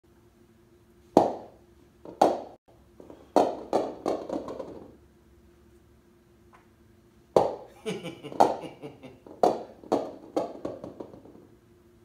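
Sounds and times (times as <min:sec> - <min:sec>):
bowling balls clacking together: 0:01.2 - 0:05.0, 0:08.3 - 0:11.5.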